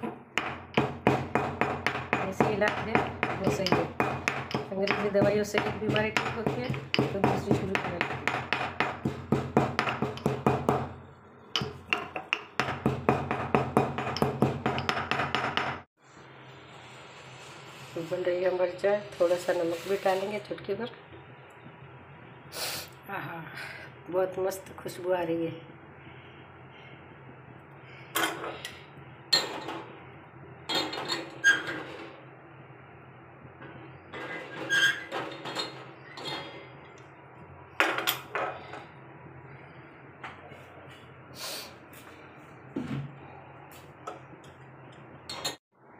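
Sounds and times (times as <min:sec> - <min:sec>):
pestle pounding in stone mortar: 0:00.0 - 0:11.0, 0:11.6 - 0:15.9.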